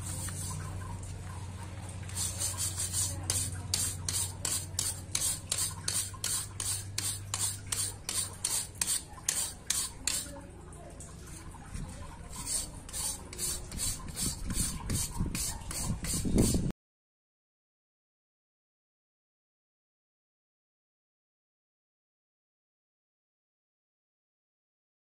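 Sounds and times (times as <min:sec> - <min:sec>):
brush scrubbing metal: 0:00.0 - 0:01.1, 0:02.0 - 0:10.4, 0:11.3 - 0:16.7.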